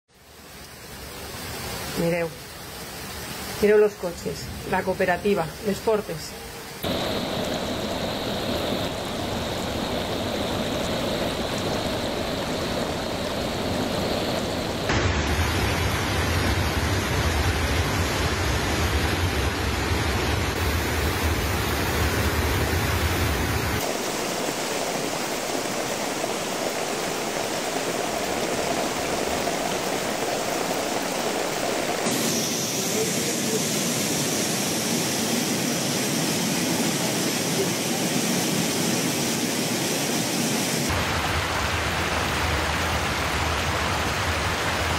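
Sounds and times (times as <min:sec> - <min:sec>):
floodwater rushing: 0:00.2 - 0:44.9
heavy low rumble: 0:06.9 - 0:15.6.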